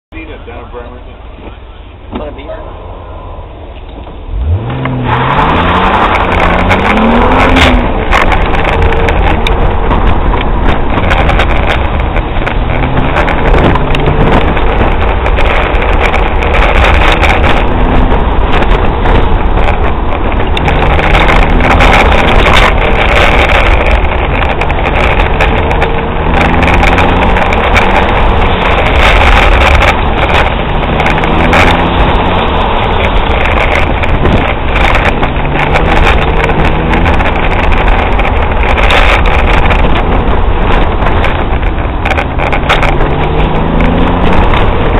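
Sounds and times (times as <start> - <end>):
car engine accelerating: 0.2 - 44.9.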